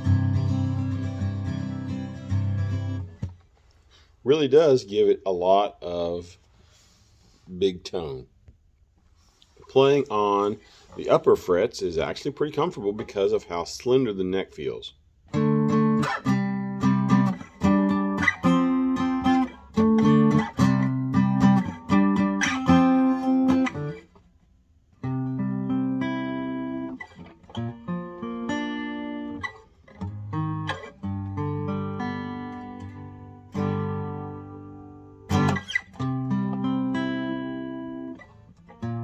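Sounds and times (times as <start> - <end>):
acoustic guitar strumming: 0.0 - 3.4, 15.3 - 24.2, 25.0 - 39.0.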